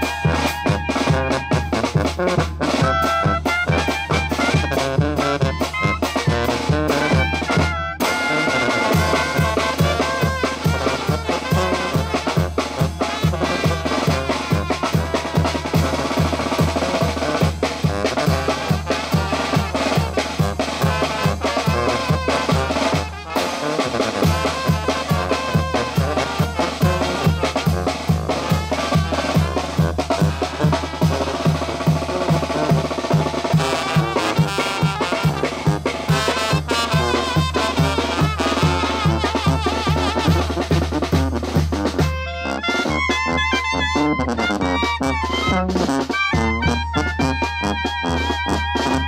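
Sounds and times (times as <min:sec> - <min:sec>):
bass drum beat: 0:00.0 - 0:08.1, 0:08.8 - 0:42.3
sousaphone bass line: 0:00.0 - 0:17.5, 0:41.8 - 0:49.0
clarinets and brass: 0:00.0 - 0:49.0
snare drum: 0:00.0 - 0:49.0.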